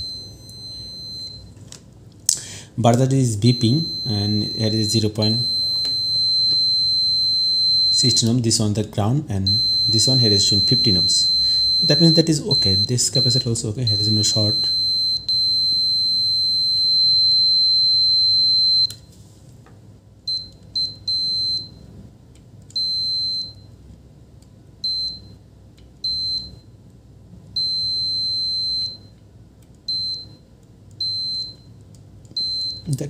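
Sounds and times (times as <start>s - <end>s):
multimeter continuity beeps: 0.0s - 1.6s, 2.9s - 8.4s, 9.4s - 19.0s, 20.2s - 21.8s, 22.7s - 23.8s, 24.8s - 25.4s, 26.0s - 26.7s, 27.5s - 29.2s, 29.8s - 30.4s, 31.0s - 33.0s.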